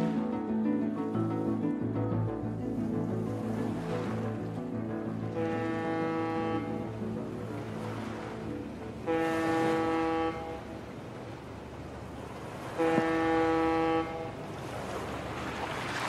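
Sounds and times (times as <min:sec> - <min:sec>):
ship's horn blasts: 0:05.1 - 0:11.3, 0:12.6 - 0:14.5.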